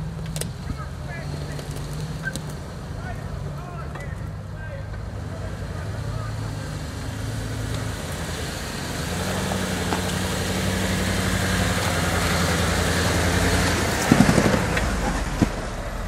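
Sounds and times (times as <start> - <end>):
sharp bumps on rocky ground: 13.3 - 16.0.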